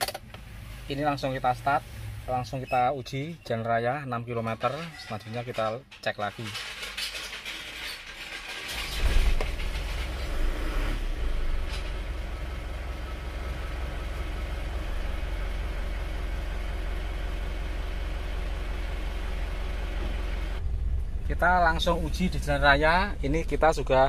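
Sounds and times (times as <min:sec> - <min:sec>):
diesel engine starting and idling: 0:08.0 - 0:24.0.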